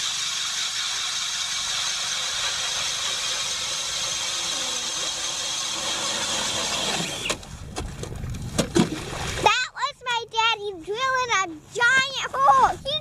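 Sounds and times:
cordless drill whining and grinding: 0.0 - 7.4.

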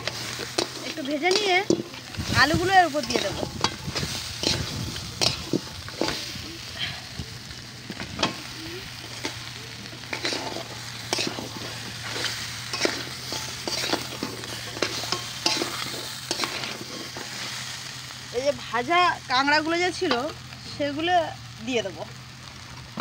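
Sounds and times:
metal spatula scraping a pan: 0.0 - 6.8, 8.2 - 17.7
frying oil sizzling: 0.0 - 23.0.

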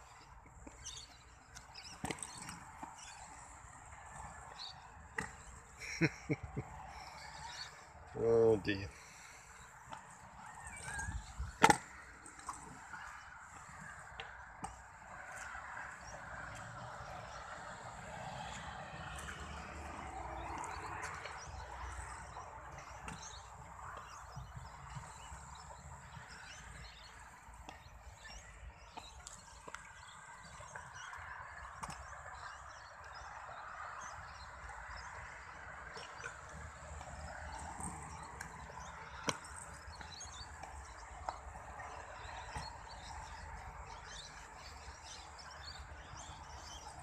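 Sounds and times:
scooter wheels rolling on concrete: 0.0 - 47.0
sharp scooter clack: 10.8 - 12.8.

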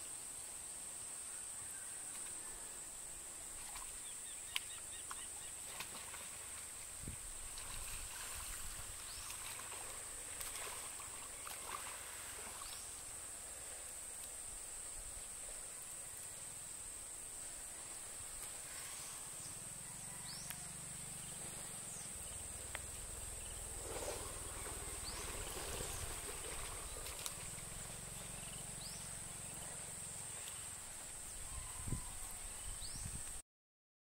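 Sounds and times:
insects droning: 0.0 - 33.4
mud sloshing: 5.6 - 12.8, 23.6 - 28.4.

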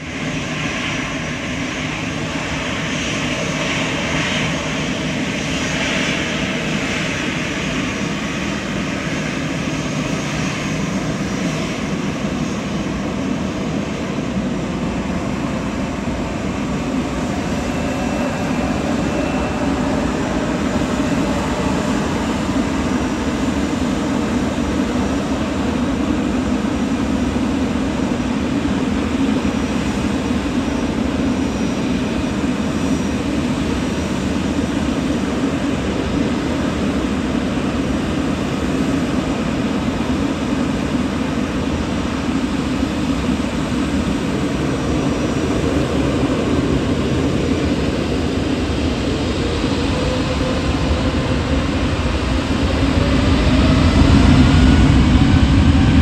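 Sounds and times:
jet engines running: 0.0 - 56.0
deep rumble: 50.0 - 56.0.

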